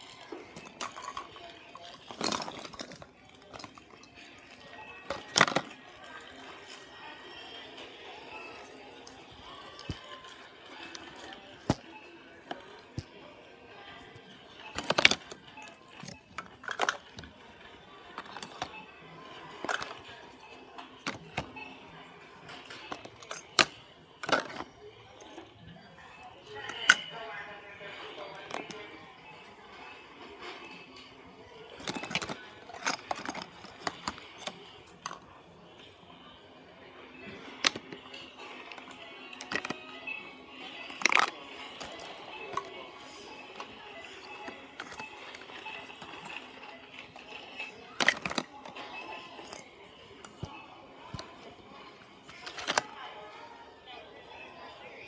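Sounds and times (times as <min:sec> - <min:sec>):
objects clattering in plastic basket: 0:00.0 - 0:04.1, 0:05.0 - 0:05.8, 0:14.7 - 0:17.4, 0:18.1 - 0:18.8, 0:19.6 - 0:20.1, 0:21.0 - 0:21.6, 0:22.6 - 0:24.7, 0:31.8 - 0:35.2, 0:37.3 - 0:39.8, 0:40.9 - 0:42.7, 0:43.5 - 0:46.5, 0:47.9 - 0:49.6, 0:52.3 - 0:52.9.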